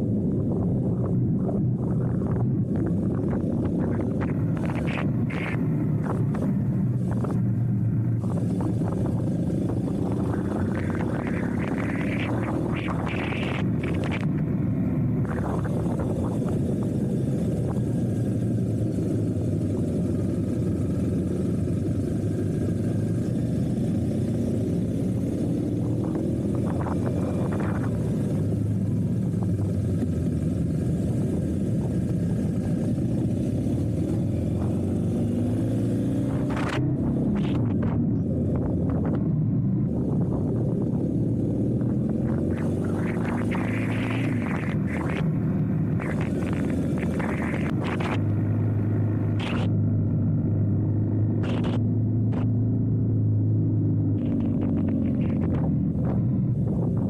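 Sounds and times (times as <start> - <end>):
motorcycle engine drone: 0.0 - 57.0
rushing noise: 42.2 - 48.3.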